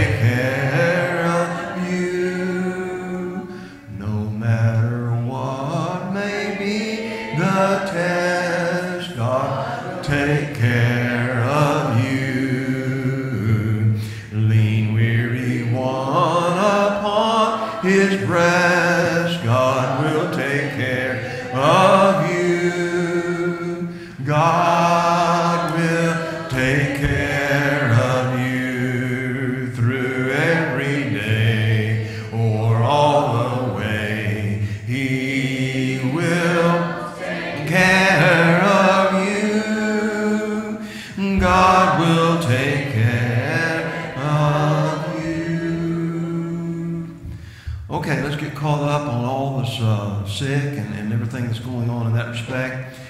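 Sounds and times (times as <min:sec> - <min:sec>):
congregation singing a hymn: 0:00.0 - 0:53.0.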